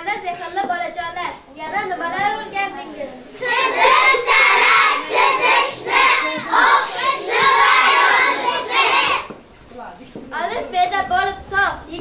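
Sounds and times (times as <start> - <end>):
children singing in unison: 3.4 - 9.4.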